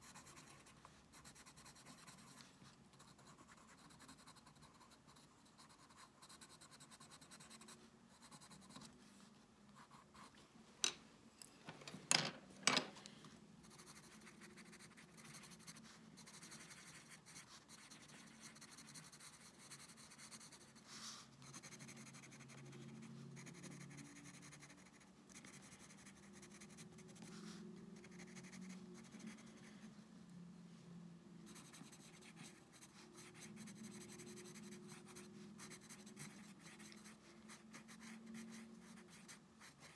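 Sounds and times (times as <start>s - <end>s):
pencil and pen scratching on paper: 0.0s - 10.4s, 13.6s - 29.9s, 31.4s - 39.9s.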